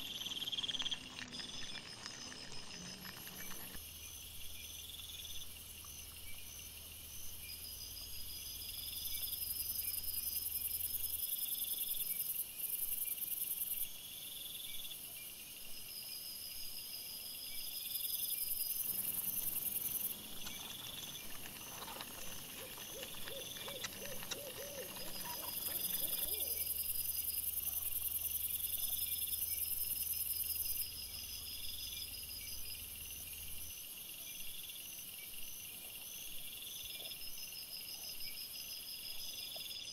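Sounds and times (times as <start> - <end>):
crickets chirping: 0.0 - 39.9
rough wavering animal call: 19.4 - 26.8.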